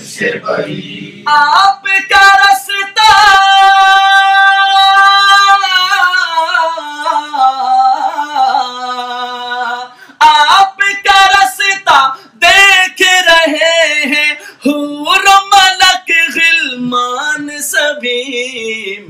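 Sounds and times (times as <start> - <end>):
man singing unaccompanied: 0.8 - 19.0.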